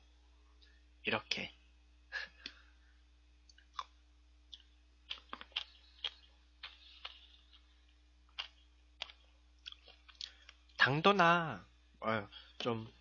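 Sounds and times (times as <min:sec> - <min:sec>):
chewing and mouth smacks: 0:03.5 - 0:10.8.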